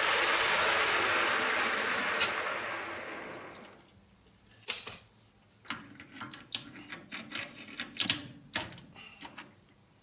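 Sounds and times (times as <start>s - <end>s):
metal clicks and rattles: 5.6s - 9.6s.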